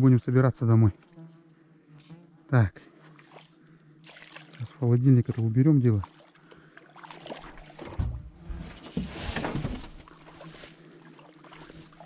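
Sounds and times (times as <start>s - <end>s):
dull knocks: 7.8s - 10.1s
rustling: 8.1s - 10.1s.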